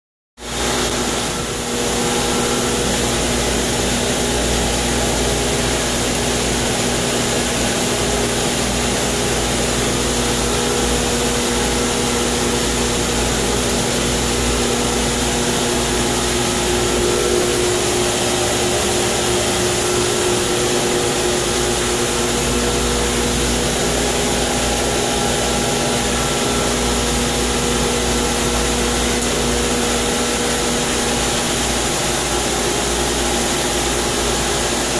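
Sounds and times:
pump motor hum: 0:00.4 - 0:34.9
loud rushing noise: 0:14.8 - 0:28.1.

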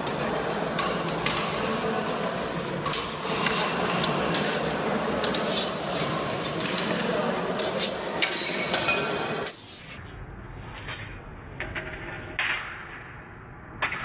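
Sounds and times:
steel swords clashing: 0:00.0 - 0:09.7.

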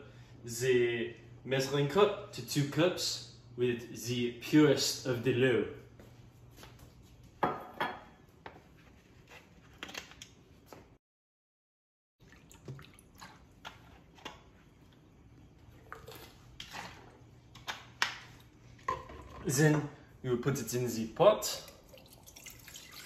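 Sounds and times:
water pouring into a glass cup: 0:21.7 - 0:23.0.

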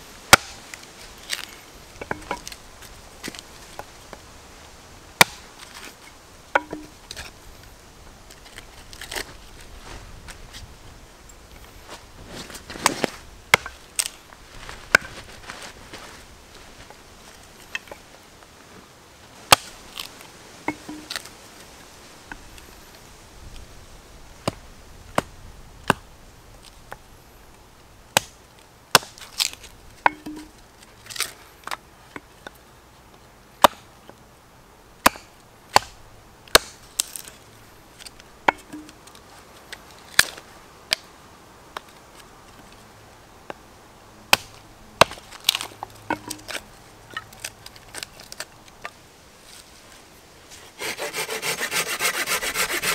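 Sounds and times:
hatchet chopping wood: 0:00.3 - 0:00.6, 0:02.0 - 0:02.6, 0:05.2 - 0:05.5, 0:06.5 - 0:06.9, 0:19.5 - 0:19.8, 0:20.7 - 0:21.2, 0:28.2 - 0:30.5, 0:33.6 - 0:33.9, 0:35.0 - 0:37.2, 0:38.5 - 0:39.0, 0:44.3 - 0:46.6.

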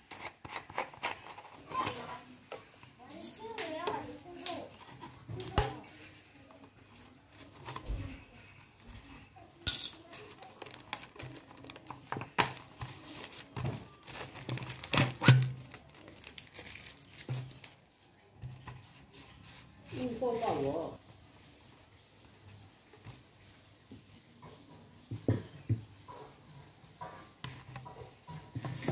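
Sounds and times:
plastic bottle crinkling: 0:10.0 - 0:19.0.

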